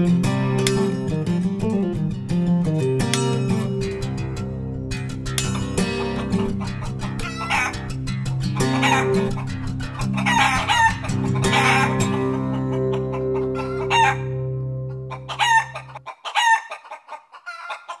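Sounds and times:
chicken calls: 5.6s - 18.0s
low musical chord: 13.4s - 15.3s.

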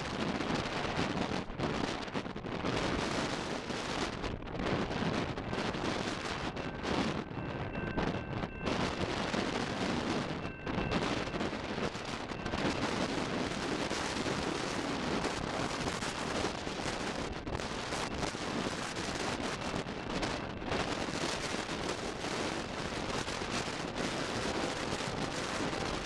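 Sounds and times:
gusty wind on microphone: 0.0s - 26.0s.

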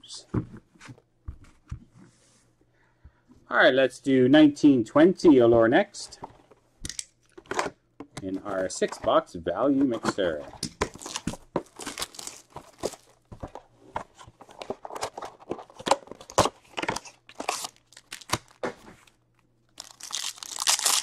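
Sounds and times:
plastic wrap crinkling and tearing: 10.9s - 13.2s, 14.9s - 19.2s, 19.8s - 21.0s.

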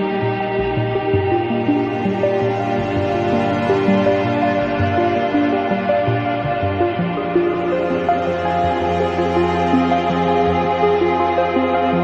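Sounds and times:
ambient music held notes: 0.0s - 12.0s.

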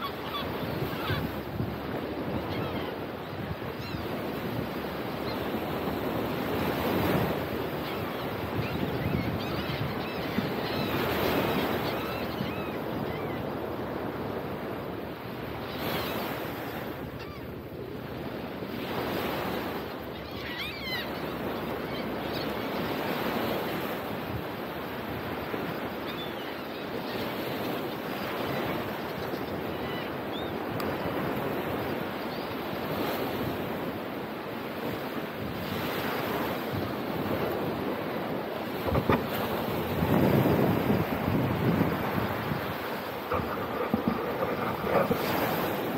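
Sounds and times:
faint high bird calls: 20.1s - 22.8s
wind buffeting microphone: 35.4s - 45.9s
surf breaking on sandy beach: 36.9s - 45.9s.

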